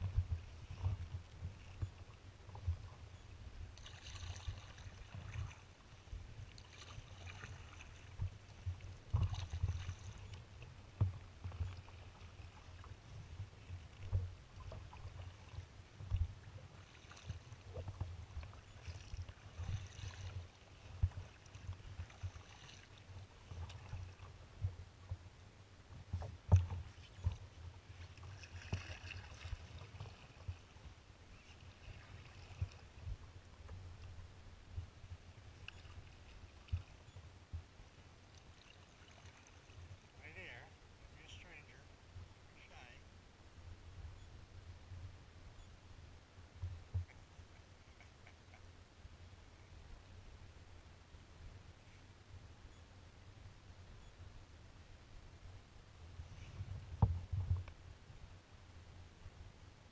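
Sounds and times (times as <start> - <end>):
paddle strokes splashing: 0.0 - 25.2, 26.0 - 41.7.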